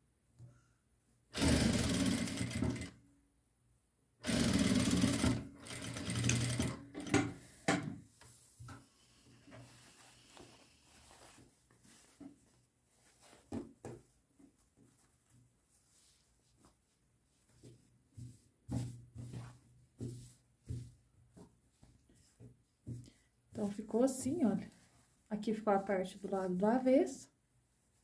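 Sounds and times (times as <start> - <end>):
sewing machine stitching: 1.4 - 3.0, 4.2 - 7.4
cloth rustling: 8.1 - 23.0.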